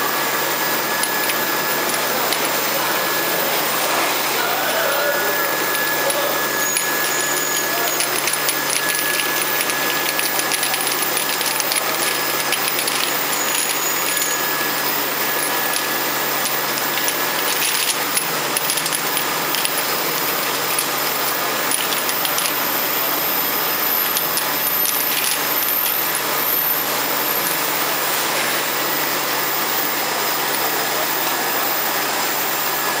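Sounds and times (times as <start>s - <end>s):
machine running noise: 0.0s - 33.0s
glass vials clinking: 0.9s - 3.3s, 5.1s - 27.7s.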